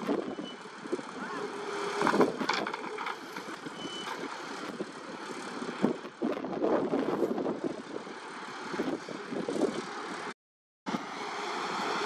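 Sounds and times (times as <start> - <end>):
excavator engine and hydraulics: 0.0 - 12.0.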